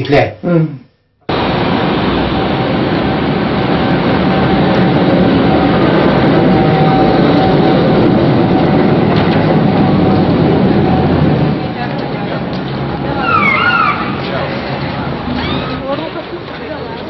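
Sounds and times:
vehicle rumble and hiss: 1.3s - 17.0s.

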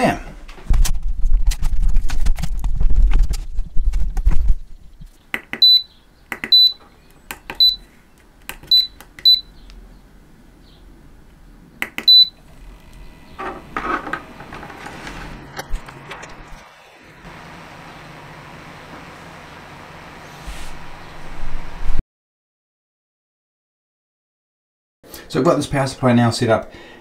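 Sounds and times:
handling noise: 11.8s - 16.6s.

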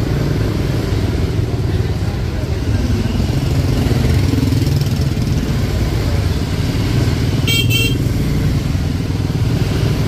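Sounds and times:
motor scooter engines running: 0.0s - 10.0s
horn beeps: 7.5s - 8.1s.

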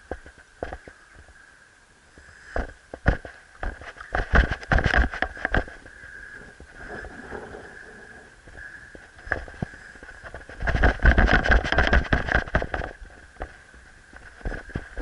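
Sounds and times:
wind buffeting microphone: 4.1s - 15.0s.

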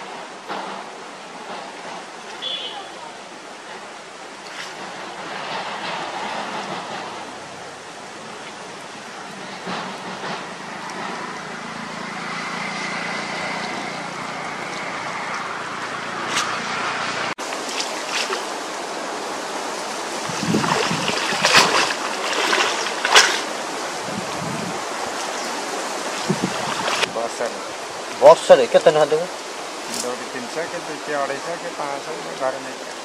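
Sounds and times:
sharp water splashes: 4.3s - 6.6s, 16.2s - 33.0s
water sloshing from fishing net: 17.4s - 27.1s.

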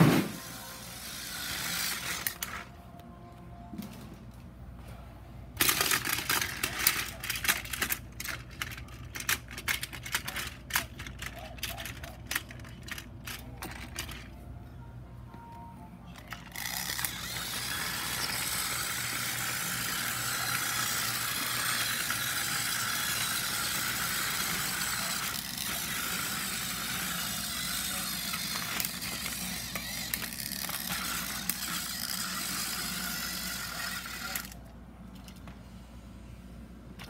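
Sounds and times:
toy motor and gears whirring: 0.0s - 2.7s, 5.6s - 14.3s, 16.2s - 34.7s.

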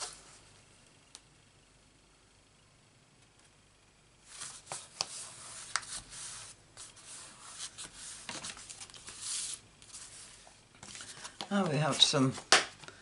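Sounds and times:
paper rustling and rubbing: 4.2s - 12.5s.

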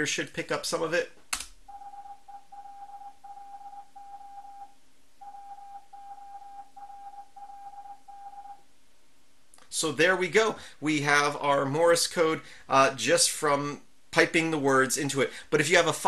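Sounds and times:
morse code beeps: 1.7s - 8.6s.

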